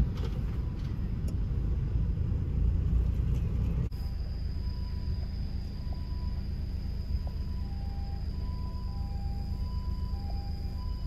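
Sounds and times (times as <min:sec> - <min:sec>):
car road and engine rumble: 0:00.0 - 0:11.0
low hum: 0:00.0 - 0:11.0.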